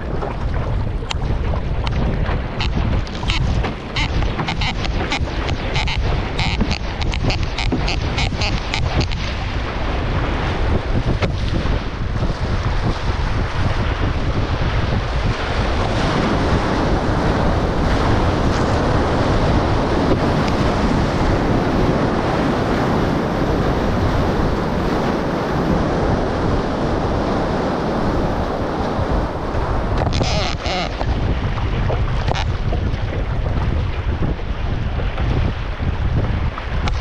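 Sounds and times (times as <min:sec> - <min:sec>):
water splashing: 0:00.0 - 0:12.9
wind buffeting microphone: 0:00.0 - 0:37.0
rushing whitewater and spray: 0:01.2 - 0:37.0.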